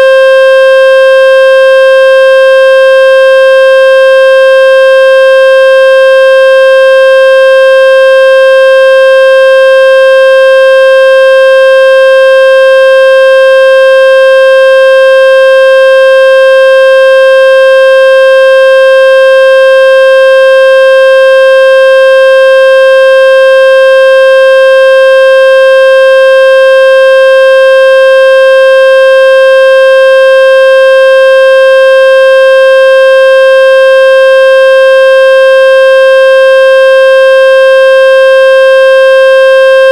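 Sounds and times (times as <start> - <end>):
buzzy electronic tone: 39.4 - 39.9.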